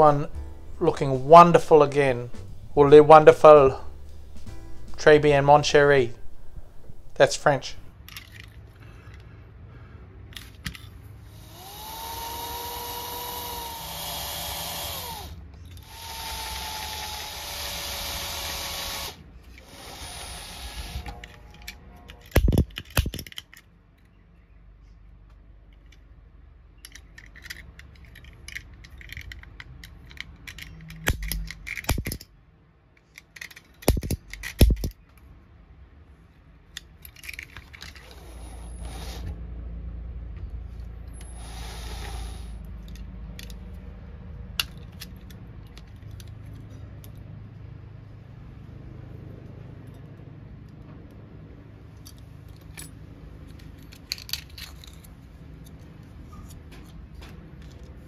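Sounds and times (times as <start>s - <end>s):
small metal parts knocking: 7.9s - 9.3s, 19.4s - 24.2s, 26.8s - 32.3s, 33.0s - 35.2s, 36.7s - 38.2s, 42.8s - 43.8s, 52.0s - 58.0s
cordless drill whining: 11.3s - 21.4s, 41.2s - 42.5s.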